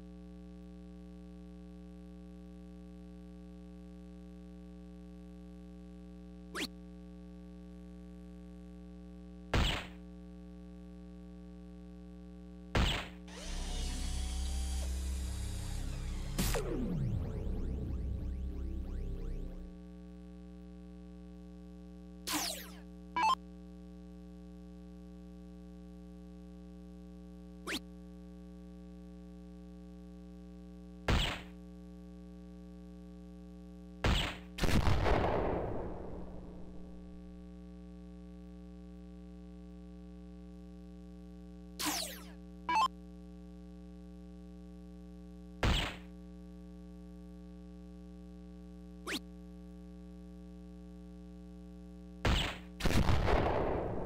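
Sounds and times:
darts hitting dartboard: 0:09.6 - 0:10.0, 0:45.6 - 0:46.0
electrical hum: 0:11.8 - 0:20.2
electronic award sound: 0:14.4 - 0:19.7.

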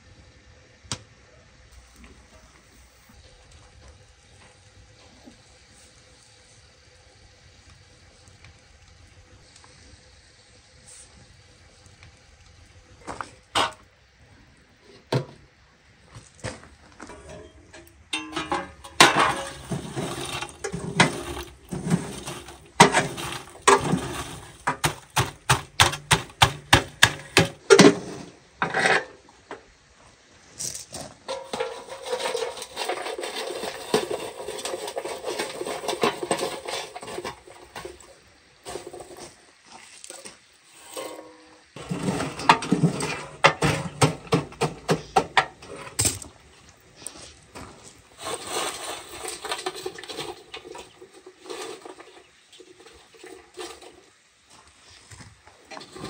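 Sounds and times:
rustling and handling food: 0:14.7 - 0:56.0.

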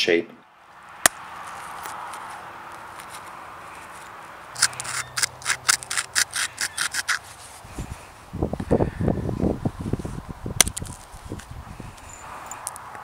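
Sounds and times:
stone scraping flint edge: 0:01.0 - 0:07.6, 0:10.6 - 0:12.8.

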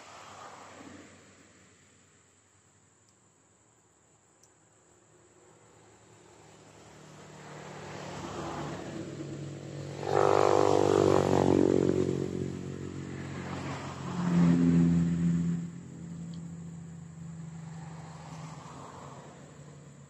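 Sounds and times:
vehicle engine passing by: 0:05.8 - 0:20.0.

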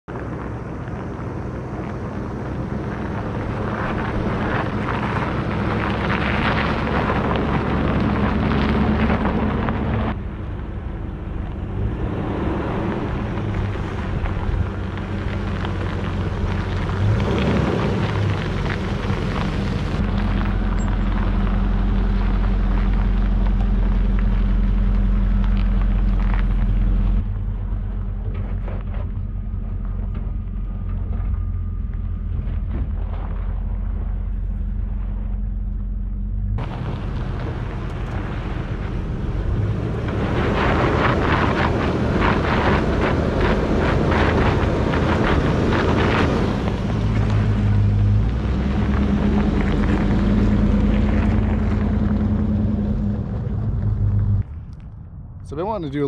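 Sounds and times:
vehicle engine running: 0:00.0 - 0:56.0
tyres crunching on gravel: 0:00.1 - 0:56.0.

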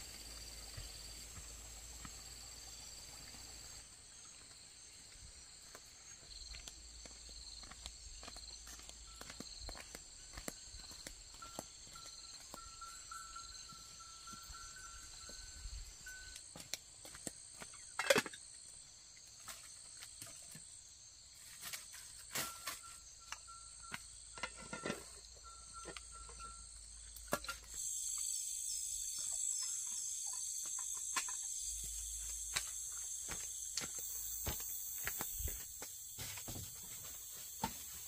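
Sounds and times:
insects chirping shrilly: 0:25.2 - 0:38.0.

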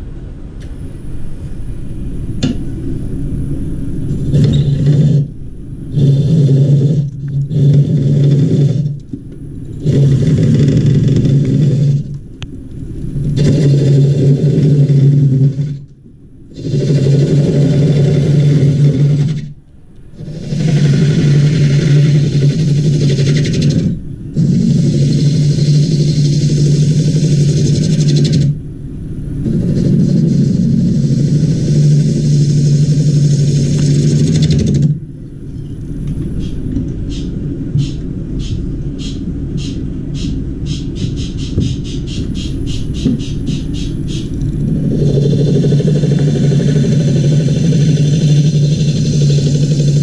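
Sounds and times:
gouge cutting wood: 0:04.3 - 0:05.3, 0:05.9 - 0:09.0, 0:09.8 - 0:12.2, 0:13.3 - 0:15.8, 0:20.2 - 0:28.5
wood lathe running: 0:05.9 - 0:09.0, 0:09.8 - 0:12.1, 0:20.2 - 0:28.5.

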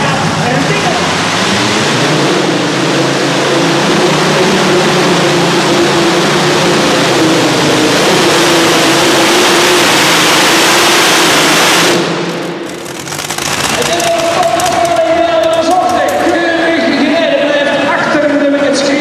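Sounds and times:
racing tractor engine under full load: 0:00.0 - 0:19.0.

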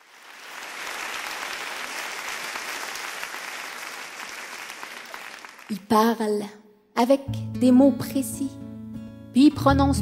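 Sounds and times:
audience applauding: 0:00.0 - 0:05.9.

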